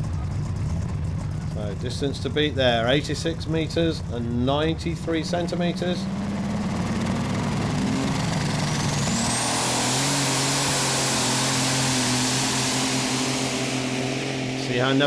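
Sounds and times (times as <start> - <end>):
racing engine roaring: 0.0 - 15.0
high-pitched whine: 5.0 - 15.0.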